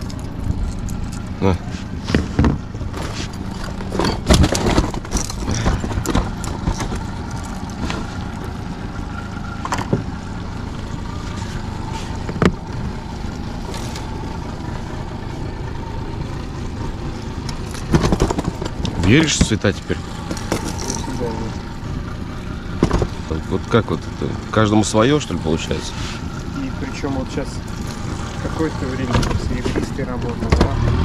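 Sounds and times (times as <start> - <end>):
outboard motor running: 0.0 - 31.0.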